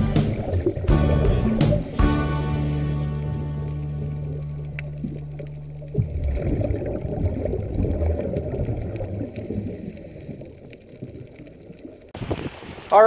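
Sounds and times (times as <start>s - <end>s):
low underwater rumble: 0.0s - 12.6s
crackle of water and bubbles: 0.1s - 2.0s, 3.2s - 13.0s.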